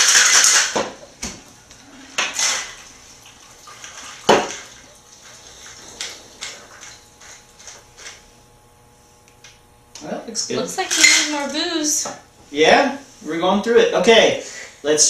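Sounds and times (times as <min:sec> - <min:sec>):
ice rattling in cocktail shaker: 0:00.0 - 0:00.8.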